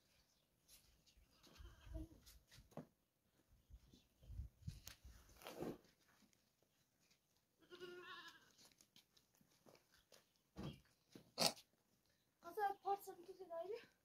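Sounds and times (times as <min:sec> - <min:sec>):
goat bleating: 0:07.6 - 0:08.6.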